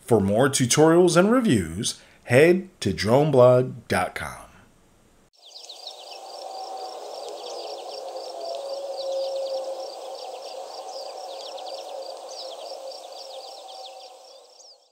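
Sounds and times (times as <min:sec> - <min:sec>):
low rushing background noise: 0:04.7 - 0:14.8
repeated high bird call: 0:05.4 - 0:14.9
small birds chirping: 0:05.4 - 0:14.9.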